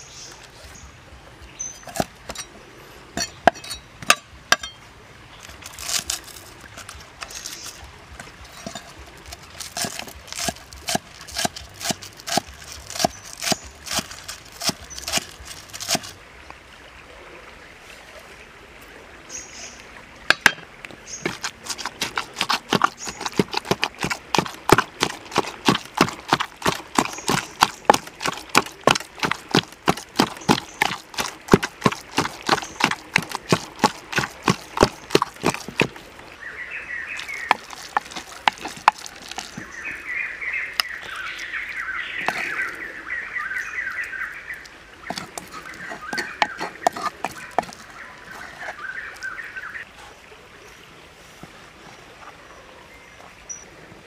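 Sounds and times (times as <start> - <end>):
cleaver chopping on wooden block: 3.2 - 4.8, 5.8 - 16.1, 20.3 - 36.0, 37.2 - 39.7, 45.1 - 47.8
wooden pestle pounding in mortar: 8.5 - 16.1, 21.3 - 36.0, 37.2 - 39.7, 45.1 - 47.8.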